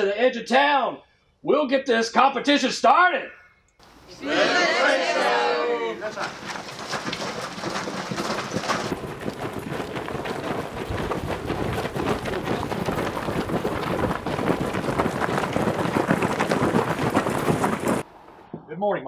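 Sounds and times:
footsteps crunching on gravel: 6.0s - 18.1s.

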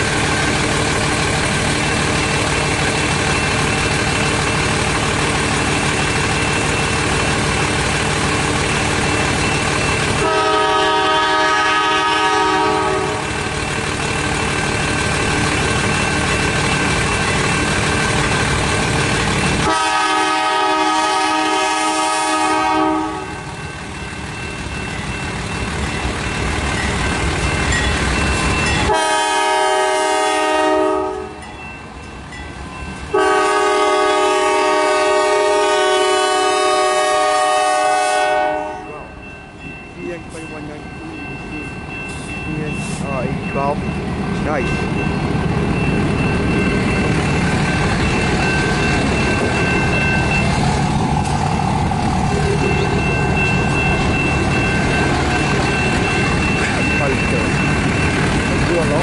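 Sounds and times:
locomotive rumble: 0.0s - 59.0s
locomotive air horn: 10.2s - 13.3s, 19.6s - 23.5s, 28.9s - 31.4s, 33.1s - 38.9s.

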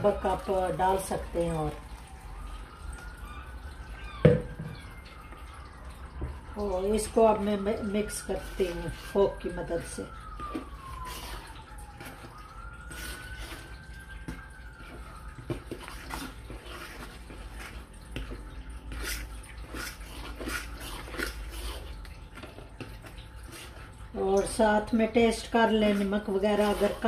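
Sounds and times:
fork stirring mashed potato: 8.0s - 9.4s, 10.4s - 12.3s, 12.9s - 24.6s, 25.4s - 27.0s.

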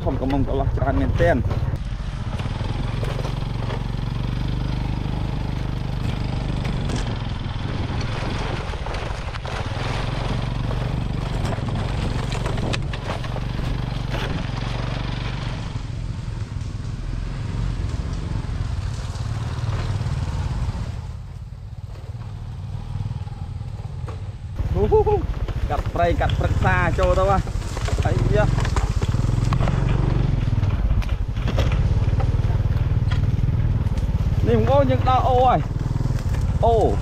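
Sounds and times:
motorcycle engine running: 0.0s - 37.0s
rushing wind noise: 6.3s - 14.5s.

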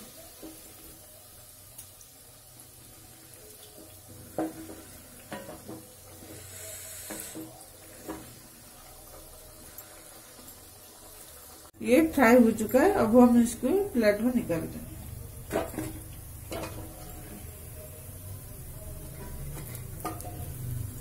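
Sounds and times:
dough frying in hot oil: 0.0s - 21.0s.

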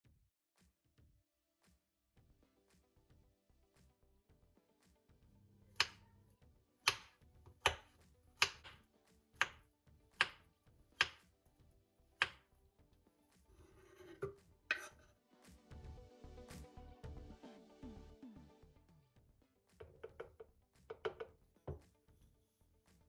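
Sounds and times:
soft background music: 2.2s - 23.0s
knife chopping on cutting board: 5.8s - 6.0s, 6.8s - 8.8s, 10.2s - 10.4s, 11.0s - 11.2s, 12.2s - 12.4s
knife scraping board: 13.6s - 15.1s.

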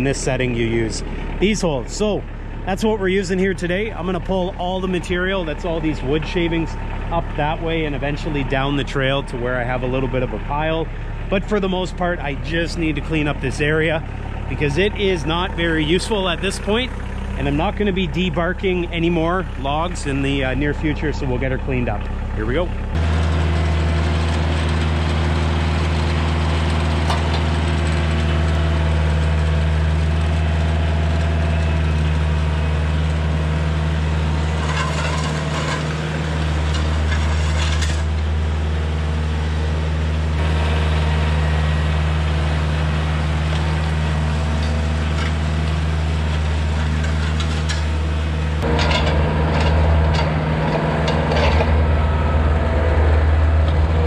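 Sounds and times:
tractor diesel engine running: 0.0s - 54.0s
rake dragging through dirt: 30.0s - 38.6s.

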